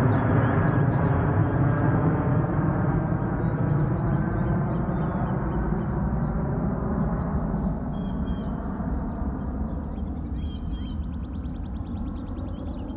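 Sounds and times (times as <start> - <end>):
jet engine rumble: 0.0 - 12.9
birds calling: 3.2 - 12.9.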